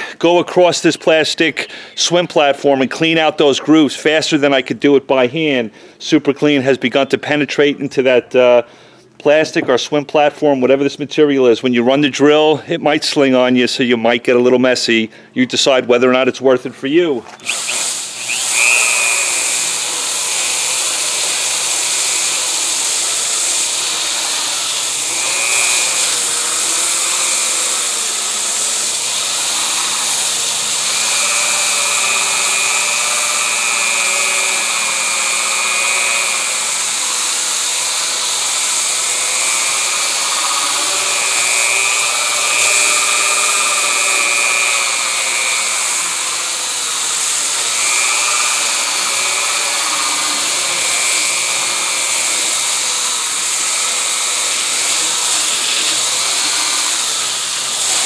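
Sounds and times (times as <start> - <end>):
drill motor whine: 17.3 - 58.0.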